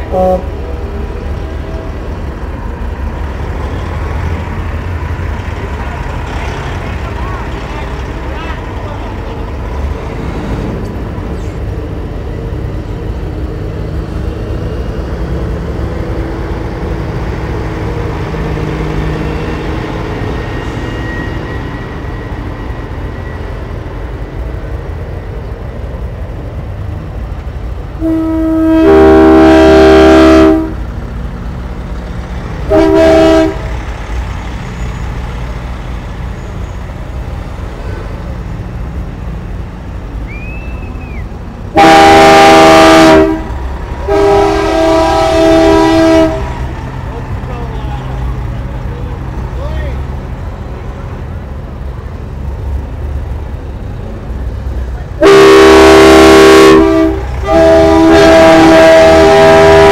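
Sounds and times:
multi-tone air horn blasts: 0.0s - 0.5s, 28.0s - 30.8s, 32.7s - 33.6s, 41.8s - 43.5s, 44.1s - 46.5s, 55.2s - 59.9s
diesel truck engines rumbling: 0.0s - 59.9s.

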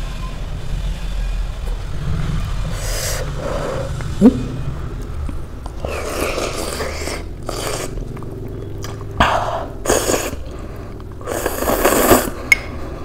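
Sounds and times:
chewing: 5.6s - 12.7s
person slurping noodles: 5.8s - 8.2s, 8.9s - 12.5s.

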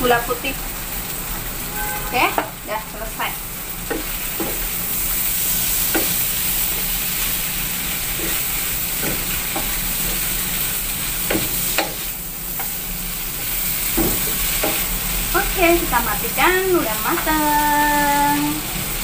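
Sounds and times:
food sizzling in a frying pan: 0.0s - 19.0s
spatula scraping and knocking pan: 3.8s - 4.8s, 5.4s - 12.8s, 13.4s - 14.9s.

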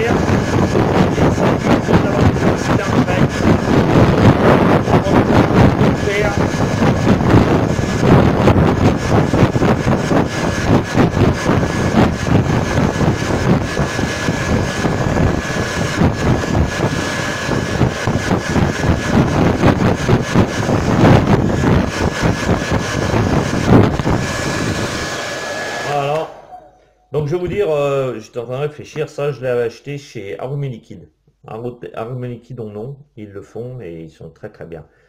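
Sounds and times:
hair dryer blowing: 0.0s - 27.7s.

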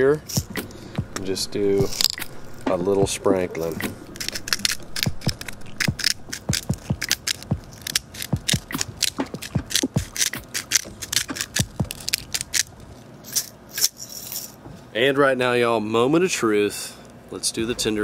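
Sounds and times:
grinder cracking salt crystals: 3.6s - 13.5s.

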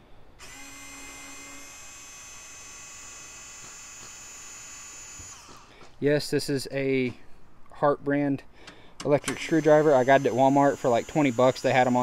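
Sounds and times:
electric screwdriver whine: 0.4s - 5.7s, 9.3s - 12.0s.

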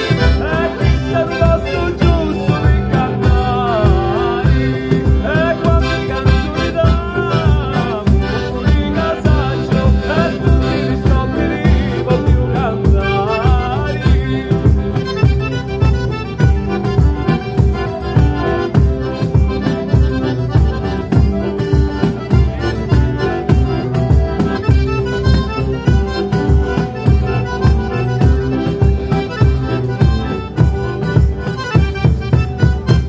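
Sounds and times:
accordion: 0.0s - 33.0s
drums beat: 0.0s - 33.0s
guitar: 0.0s - 33.0s.

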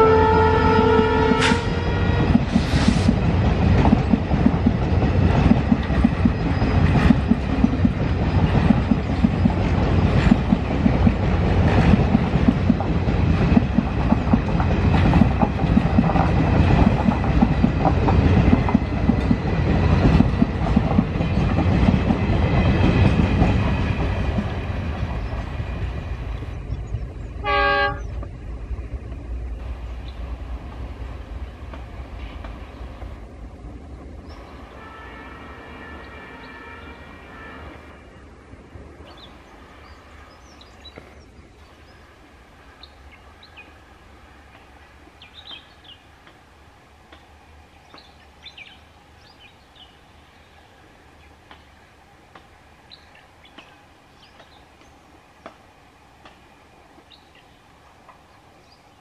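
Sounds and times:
train horn blast: 0.0s - 2.5s, 27.4s - 28.2s, 34.7s - 38.1s
train wheels clacking on rails: 0.7s - 26.5s, 56.2s - 57.2s.

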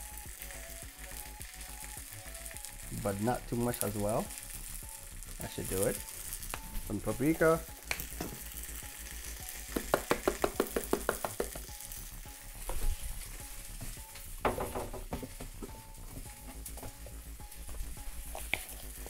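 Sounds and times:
pan sizzling: 0.0s - 19.0s.

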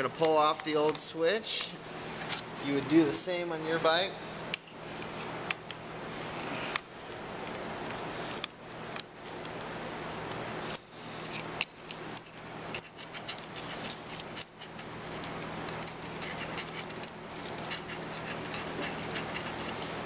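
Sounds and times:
metallic clicks and scrapes: 10.6s - 20.0s.

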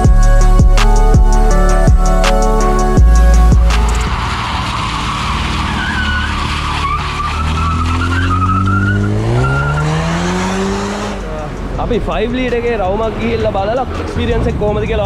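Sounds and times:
car engine accelerating: 0.0s - 15.0s
tyres squealing: 3.9s - 10.3s.

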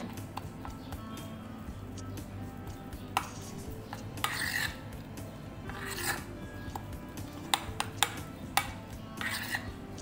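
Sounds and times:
spoon stirring thick batter: 0.0s - 10.0s.

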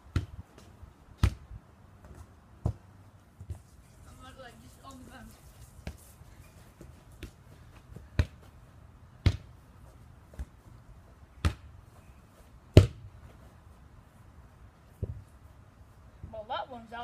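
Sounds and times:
ball bouncing thuds: 0.1s - 3.6s, 6.8s - 8.5s, 9.2s - 9.5s, 10.3s - 10.6s, 11.4s - 11.7s, 12.7s - 13.1s.

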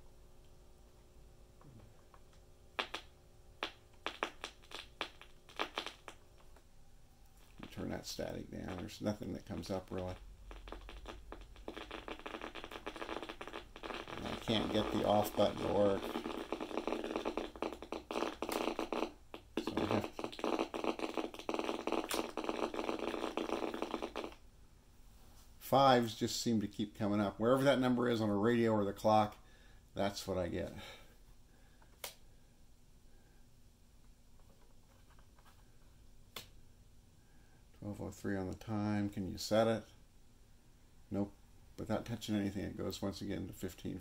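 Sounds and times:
radio static hiss with crackle: 1.9s - 6.7s, 7.4s - 24.4s.

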